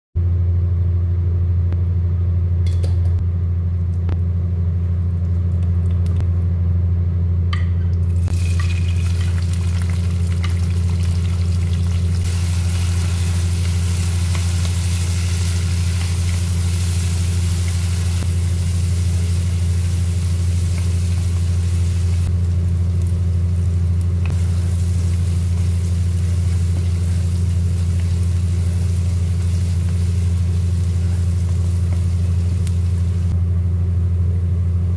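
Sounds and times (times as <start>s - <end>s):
loud low hum: 0.2s - 34.9s
onions sizzling in hot oil: 8.1s - 33.4s.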